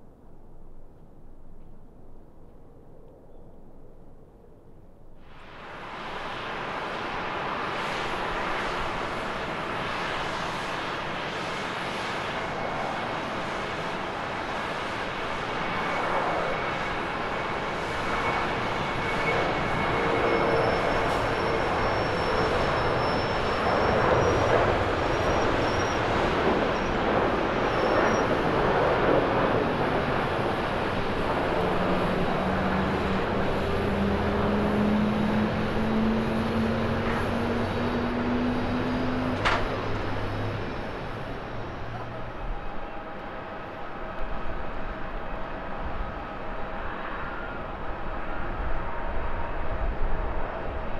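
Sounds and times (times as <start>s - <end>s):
jet engine roar: 0.0s - 50.9s
low drone rising in pitch: 31.0s - 43.3s.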